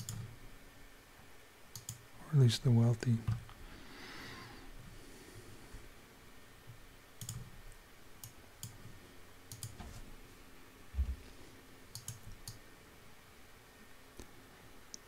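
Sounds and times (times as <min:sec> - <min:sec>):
mouse and keyboard clicks: 0:00.0 - 0:00.3, 0:01.8 - 0:02.0, 0:07.2 - 0:07.5, 0:09.5 - 0:09.9, 0:11.9 - 0:12.6
dull low thump: 0:11.0 - 0:11.2.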